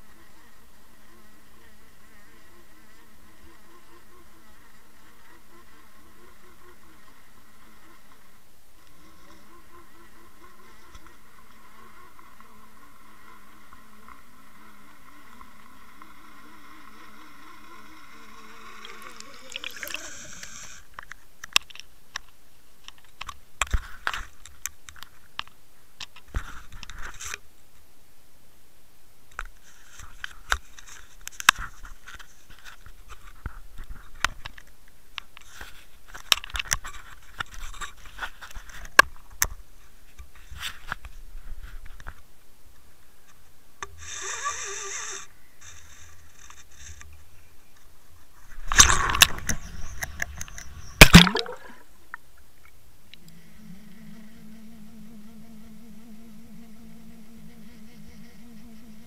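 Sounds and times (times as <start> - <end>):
wavering underwater hum: 8.9 - 20.9, 48.4 - 59.0.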